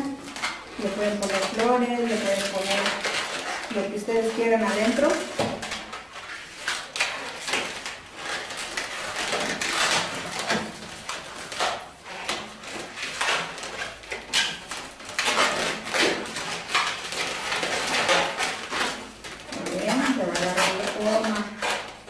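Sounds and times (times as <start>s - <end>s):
balloons rubbing and squeaking: 0.0s - 22.0s.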